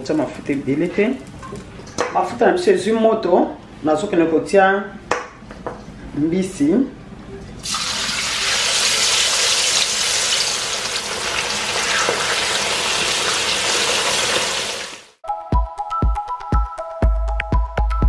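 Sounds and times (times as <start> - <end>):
fish frying in hot oil: 7.6 - 15.2.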